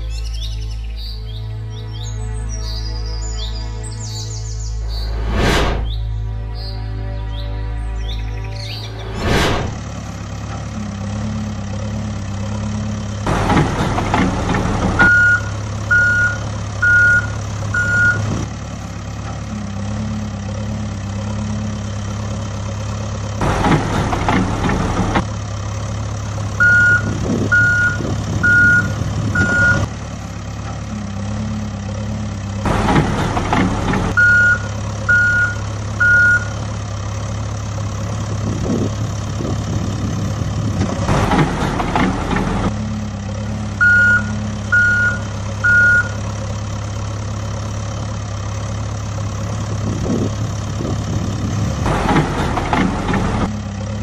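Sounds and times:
diesel loader engine running: 0:00.0 - 0:54.0
reversing alarm beeping: 0:15.0 - 0:18.4, 0:26.6 - 0:29.9, 0:34.2 - 0:36.6, 0:43.8 - 0:46.2.

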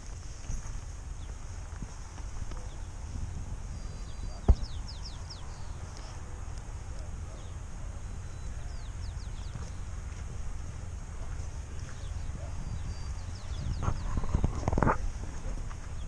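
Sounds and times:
wind rumble on microphone: 0:00.0 - 0:16.0
small bird chirping: 0:02.6 - 0:06.2, 0:07.2 - 0:10.0, 0:11.4 - 0:14.9.

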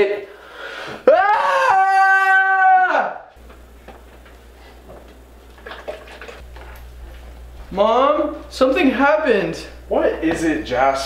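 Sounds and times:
low kitchen hum: 0:00.0 - 0:11.0
young man screaming: 0:01.0 - 0:03.3.

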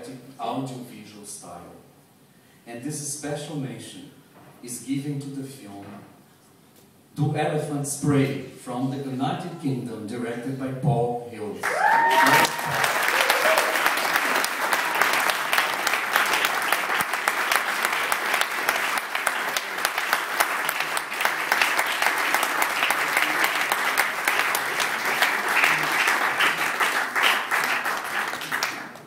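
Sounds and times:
audience applauding: 0:11.6 - 0:29.0.

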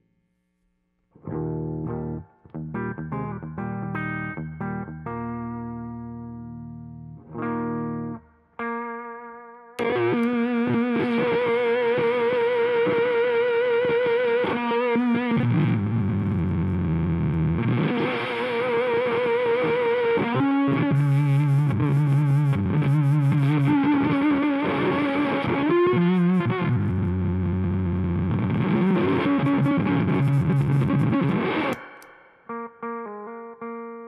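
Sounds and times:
distorted electric guitar: 0:01.1 - 0:34.0
clean guitar note ringing: 0:28.8 - 0:34.0.

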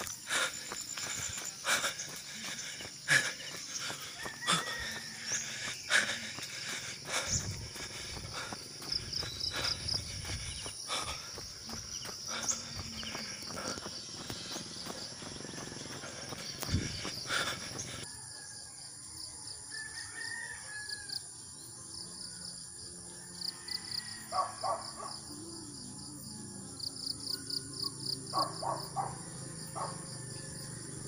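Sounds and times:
insects chirping: 0:00.0 - 0:31.0
rooster crowing: 0:03.5 - 0:06.2, 0:19.6 - 0:21.3, 0:23.3 - 0:24.8.

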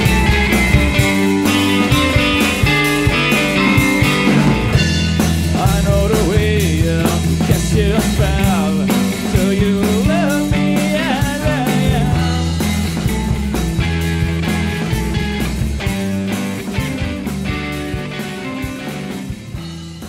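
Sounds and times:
wavering lead melody: 0:00.0 - 0:05.5
rock music with drum beat: 0:00.0 - 0:20.0.

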